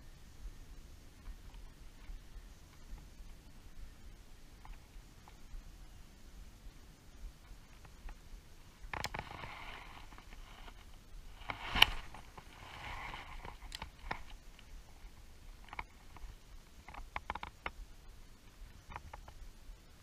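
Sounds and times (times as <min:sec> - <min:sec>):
fishing reel clicks and rustles: 0:08.8 - 0:17.8.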